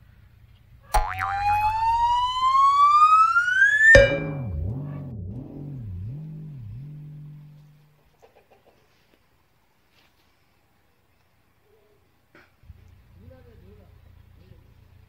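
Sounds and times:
low springy boing: 0:00.9 - 0:08.0
rising slide whistle: 0:01.0 - 0:05.4.

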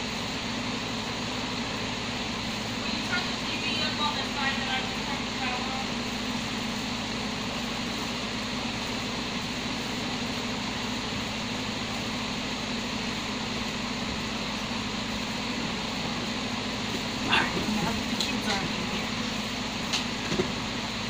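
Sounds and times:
machine hum and hiss: 0:00.0 - 0:21.0.

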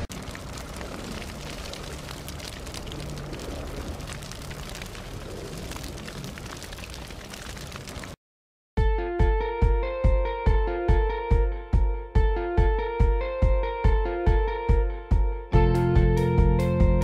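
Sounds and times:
crackling hiss with pops: 0:00.0 - 0:08.2.

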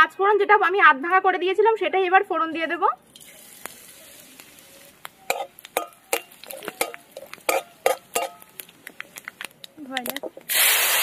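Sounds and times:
seeds sizzling in hot oil: 0:03.1 - 0:11.0.

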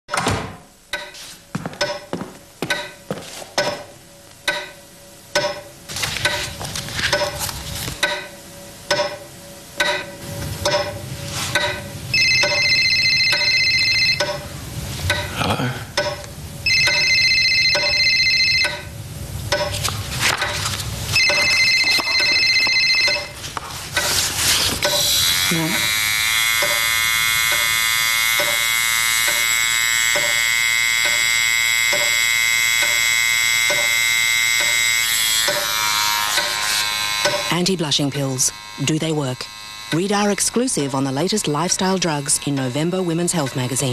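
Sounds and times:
phone ringing: 0:11.6 - 0:14.5, 0:16.1 - 0:19.0, 0:21.2 - 0:23.5.

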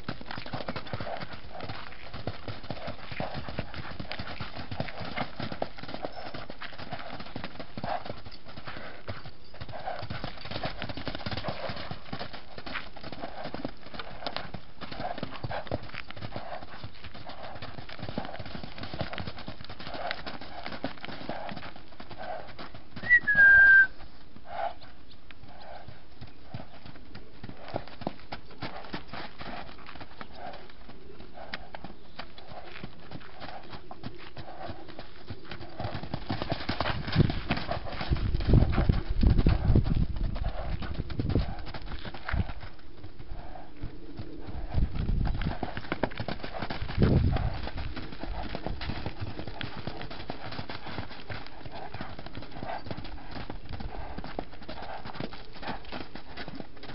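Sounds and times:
horse hooves cantering on sand: 0:00.0 - 0:56.9
short falling whistle: 0:23.0 - 0:24.0.

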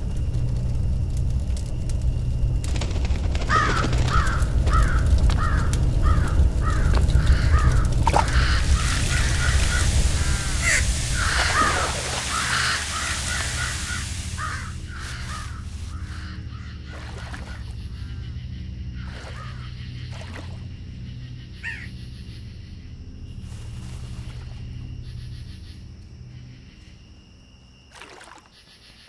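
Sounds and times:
low rumble: 0:00.0 - 0:27.1
crows cawing: 0:03.4 - 0:20.0, 0:21.5 - 0:22.0.

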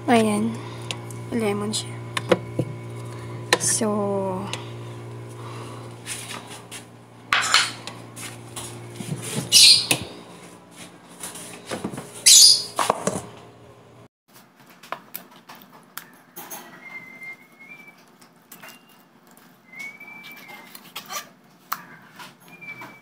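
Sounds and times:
refrigerator hum: 0:00.0 - 0:14.1, 0:19.6 - 0:21.5
metal bowl clattering: 0:07.4 - 0:07.8.

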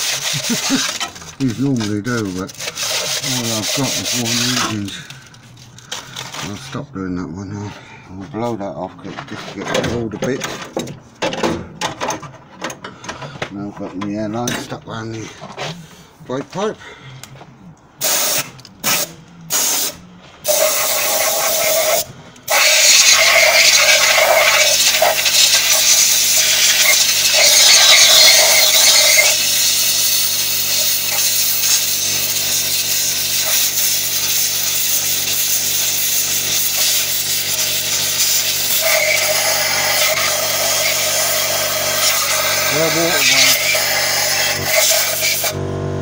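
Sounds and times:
pneumatic tool hissing: 0:00.0 - 0:01.8, 0:02.4 - 0:06.4, 0:18.0 - 0:45.6
compressed air blasts: 0:18.0 - 0:45.6.

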